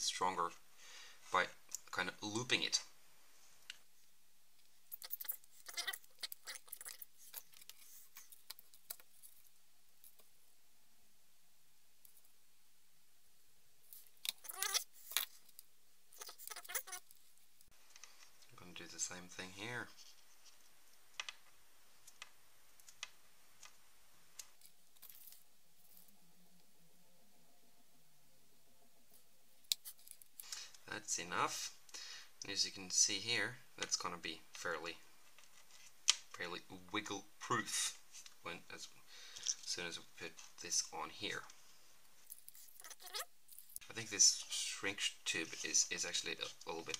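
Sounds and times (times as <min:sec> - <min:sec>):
small parts clicking and rustling: 0:04.6 - 0:10.4, 0:13.9 - 0:18.5, 0:20.0 - 0:26.2, 0:29.6 - 0:30.8, 0:39.3 - 0:40.7, 0:42.2 - 0:43.9.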